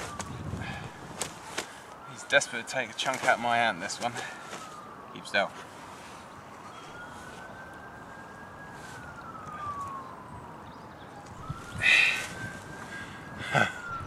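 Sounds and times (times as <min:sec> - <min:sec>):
emergency vehicle siren wailing: 0:00.0 - 0:14.0.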